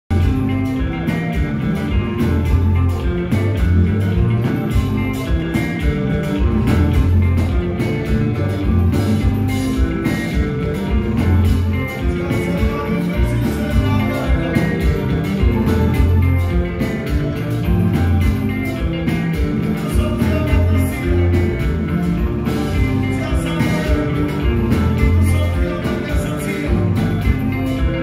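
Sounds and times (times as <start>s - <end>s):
heavy bass: 0.0s - 28.0s
electric guitar: 0.1s - 28.0s
live band playing: 0.1s - 28.0s
steady drum beat: 0.1s - 28.0s.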